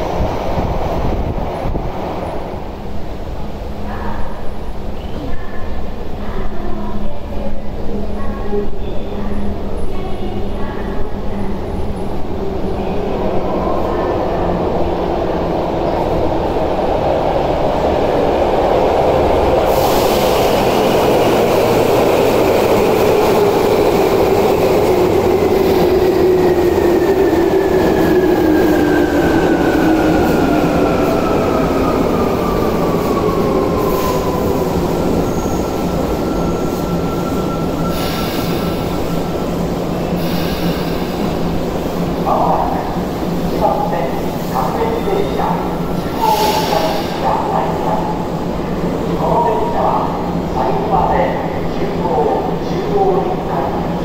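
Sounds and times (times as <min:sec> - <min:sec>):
train braking: 0:24.3 - 0:41.4, 0:44.5 - 0:47.5.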